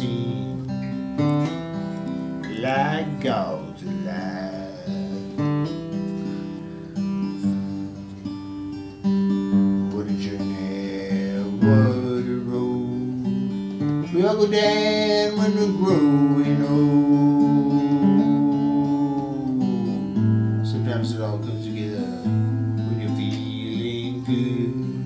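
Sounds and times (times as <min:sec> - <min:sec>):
man singing: 0:00.0 - 0:00.8, 0:02.4 - 0:05.9, 0:09.8 - 0:25.0
acoustic guitar strumming chords: 0:00.0 - 0:25.0.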